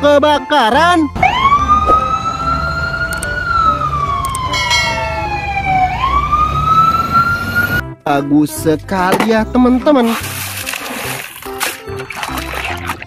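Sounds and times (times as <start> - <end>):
truck rumble: 0.0 - 7.9
fire engine siren wailing: 0.5 - 7.8.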